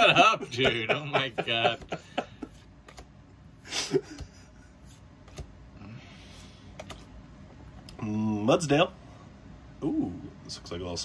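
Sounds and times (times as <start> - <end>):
cards clicking: 2.8 - 3.1.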